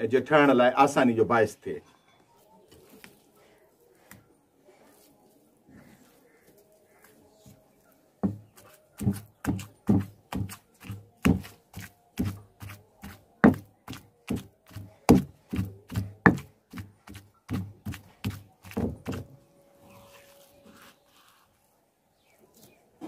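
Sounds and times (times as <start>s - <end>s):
pestle pounding in mortar: 8.2s - 19.3s.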